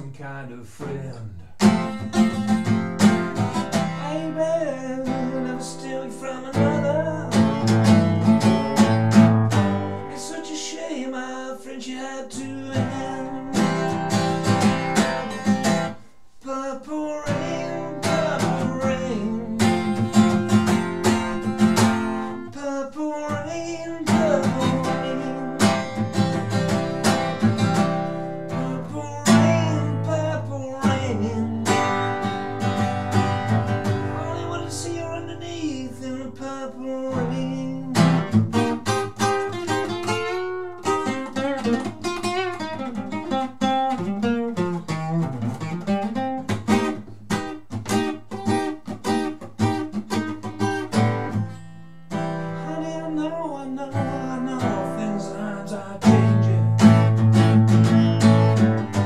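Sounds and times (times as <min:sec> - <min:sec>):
person singing wordlessly: 0:00.0 - 0:01.5, 0:03.7 - 0:09.3, 0:10.0 - 0:15.5, 0:16.4 - 0:26.6, 0:28.4 - 0:32.7, 0:33.4 - 0:40.2, 0:52.5 - 0:59.0
acoustic guitar strumming: 0:00.0 - 0:59.0.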